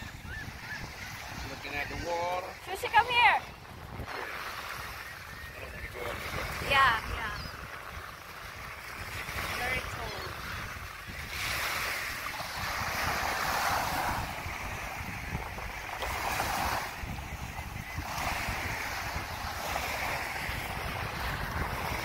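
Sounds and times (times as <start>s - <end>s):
small waves breaking on beach: 0.0s - 22.0s
wind rumbling on microphone: 0.0s - 22.0s.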